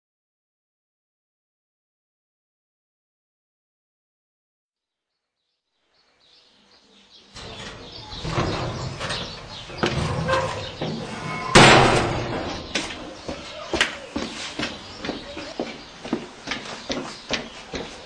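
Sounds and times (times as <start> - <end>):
metal door knocking and rattling: 7.4 - 12.8
metal door bang: 7.4 - 13.0.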